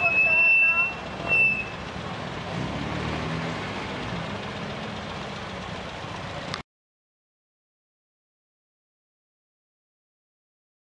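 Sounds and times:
outdoor crowd noise: 0.0 - 6.6
sports car engine idling: 0.4 - 2.6, 3.7 - 6.6.

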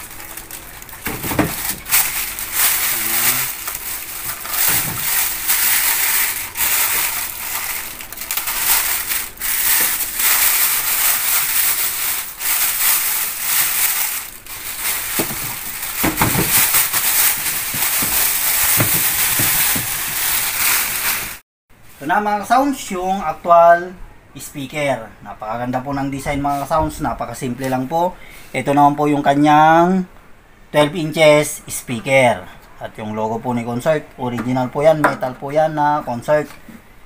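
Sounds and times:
plastic bag crinkling: 0.0 - 21.4.

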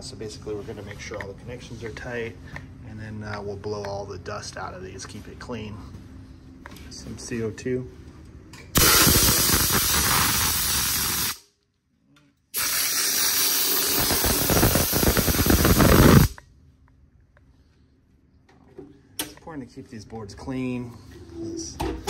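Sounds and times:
compressed gas hissing from nozzle: 8.8 - 11.4, 12.6 - 16.4.

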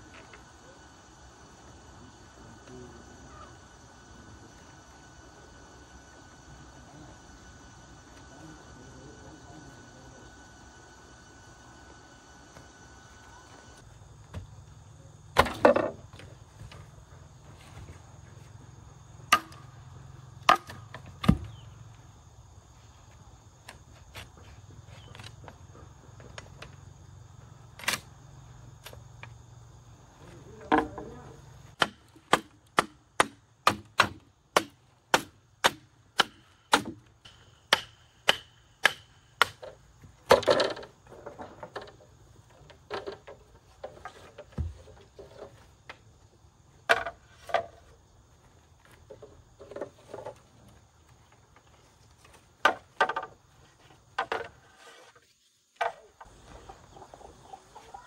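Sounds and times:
chopping strokes: 31.8 - 39.6.

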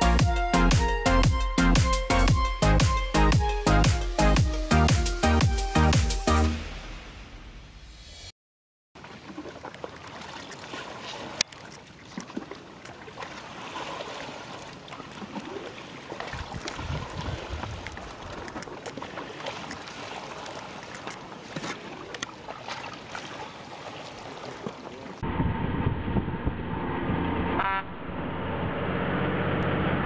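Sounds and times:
water splashing and trickling: 9.0 - 25.2
low rumble: 25.2 - 30.0.

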